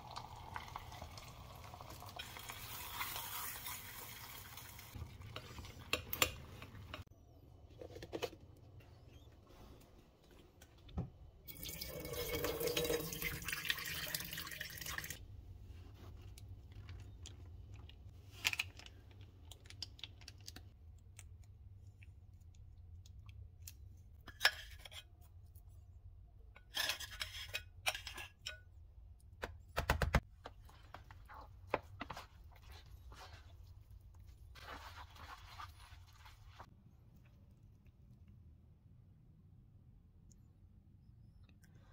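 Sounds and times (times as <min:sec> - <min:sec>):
egg sizzling in saucepan: 0:00.0 - 0:05.0
chopsticks stirring: 0:34.6 - 0:36.6.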